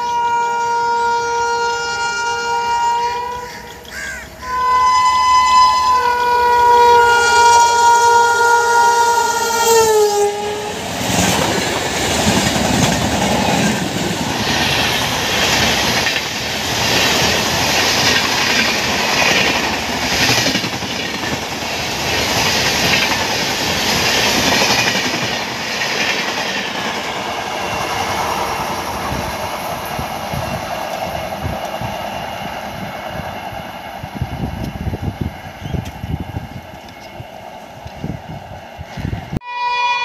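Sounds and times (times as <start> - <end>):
locomotive horn: 0.0 - 3.8, 4.4 - 11.0, 39.4 - 40.0
train rushing past: 4.4 - 40.0
train wheels clattering: 10.8 - 34.9.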